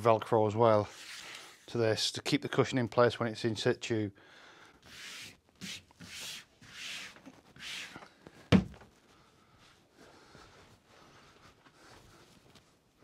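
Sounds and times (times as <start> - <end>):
hands swishing cloth on fabric: 4.9 - 8.0
thump: 8.5 - 8.9.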